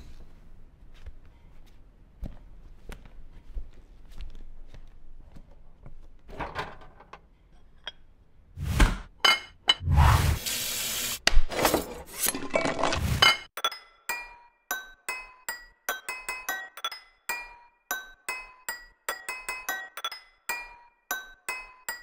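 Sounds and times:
glass clinks: 13.6s - 22.0s.

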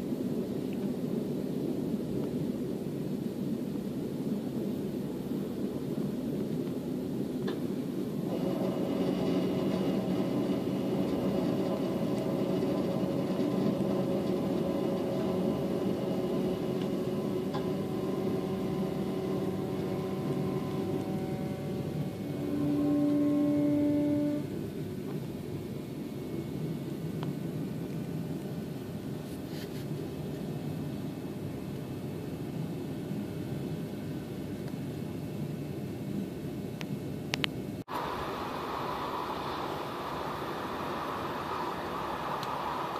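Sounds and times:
train rumble and rail noise: 0.0s - 34.4s, 37.4s - 42.9s
hum of steady tones: 0.0s - 42.9s
single steady tone: 17.2s - 25.3s.

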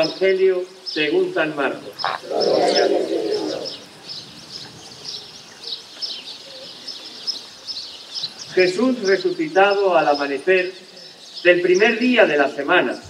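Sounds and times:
small birds chirping: 0.0s - 13.0s
murmur of many voices: 1.7s - 4.0s.

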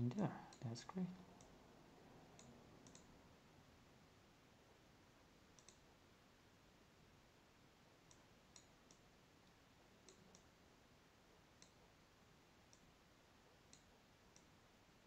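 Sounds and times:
faint mouse clicks: 2.4s - 3.1s, 5.5s - 5.9s, 8.0s - 10.5s, 11.6s - 11.9s, 12.7s - 13.0s, 13.6s - 14.6s.

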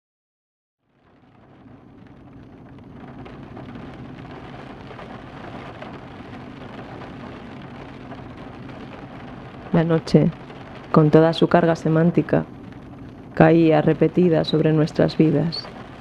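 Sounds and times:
rain-like hiss with crackle: 0.8s - 16.0s
low hum: 1.0s - 16.0s.

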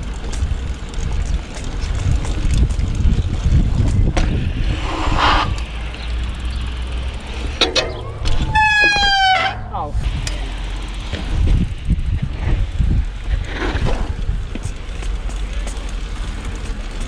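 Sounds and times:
wind buffeting the microphone: 0.0s - 6.6s, 9.9s - 16.6s
bike clicks and rattles: 0.0s - 17.0s
short scraping hiss: 4.6s - 5.8s.

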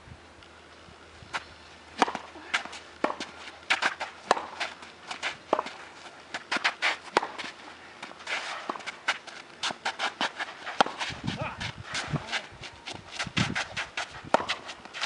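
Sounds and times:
ball bouncing on hard court: 2.0s - 4.7s, 13.5s - 14.7s
tennis ball hit by racket: 2.0s - 15.0s
quick footsteps: 2.1s - 15.0s.

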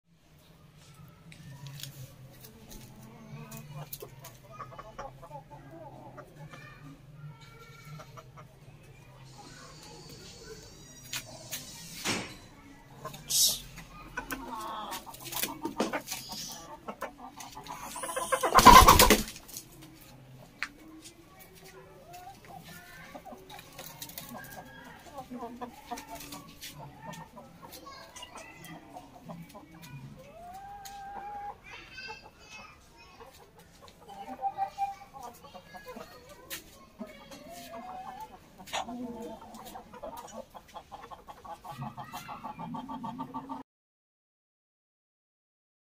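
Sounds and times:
chickens clucking: 0.3s - 43.6s
loud rough scuffle: 18.5s - 19.4s.

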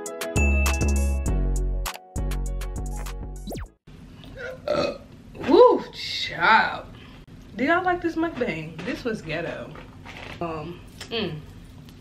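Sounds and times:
hip-hop beat: 0.0s - 3.7s
woman burping: 4.4s - 5.1s.

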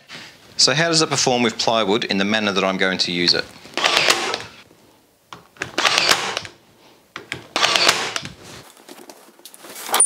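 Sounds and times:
nail gun firing: 3.8s - 4.6s, 5.6s - 6.6s, 7.2s - 8.4s.

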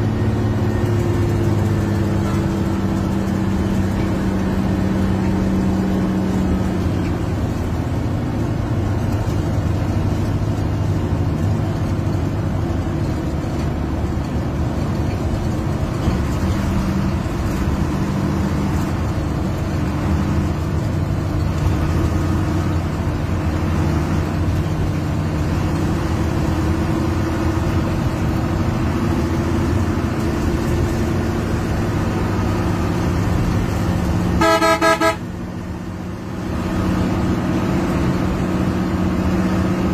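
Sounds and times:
bus diesel engine running hard: 0.0s - 39.9s
vehicle horn: 34.4s - 35.3s.

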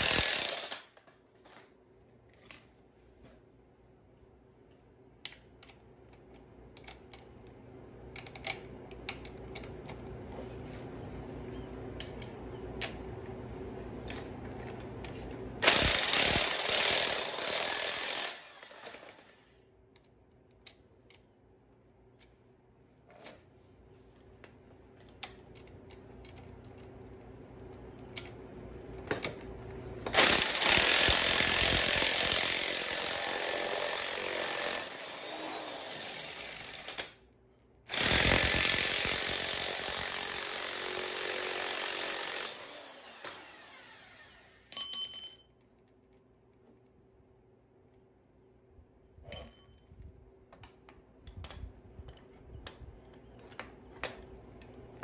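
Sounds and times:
power tool hammering rattle: 0.0s - 1.0s, 15.6s - 19.4s, 30.0s - 37.2s, 37.9s - 44.9s.

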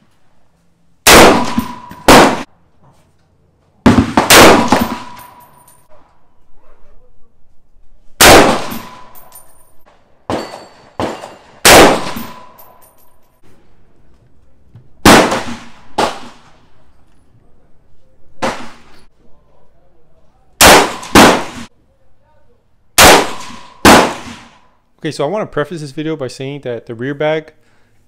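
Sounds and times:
rifle shots: 1.0s - 2.5s, 3.9s - 5.4s, 8.2s - 9.2s, 10.3s - 12.6s, 15.0s - 16.6s, 20.6s - 21.7s, 23.0s - 24.6s
short metallic ring: 5.1s - 5.9s.

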